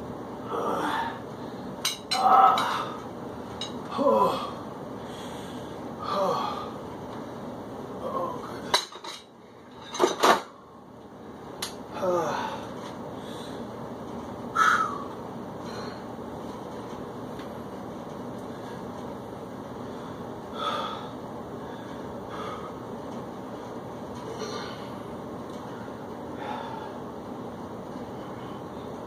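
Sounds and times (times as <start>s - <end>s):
steady background hum: 0.0s - 29.0s
man grunting: 0.5s - 1.2s, 2.2s - 3.0s, 3.9s - 4.6s, 6.0s - 6.7s, 8.0s - 8.6s, 11.9s - 12.6s.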